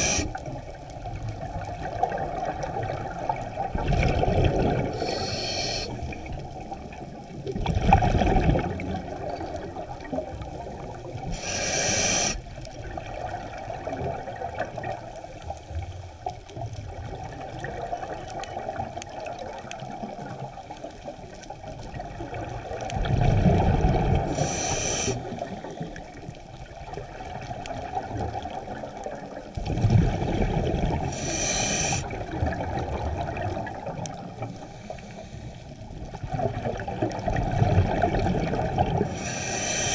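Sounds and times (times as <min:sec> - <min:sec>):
regulator hissing inhalations: 0:00.0 - 0:00.4, 0:05.0 - 0:06.1, 0:11.3 - 0:12.4, 0:24.3 - 0:25.4, 0:31.1 - 0:32.1, 0:39.1 - 0:39.9
exhaled bubbles rushing: 0:00.0 - 0:05.3, 0:05.9 - 0:11.4, 0:21.8 - 0:24.4, 0:25.2 - 0:31.2, 0:32.0 - 0:34.5, 0:36.0 - 0:39.2
low underwater rumble: 0:00.0 - 0:11.5, 0:12.4 - 0:24.5, 0:25.2 - 0:31.4.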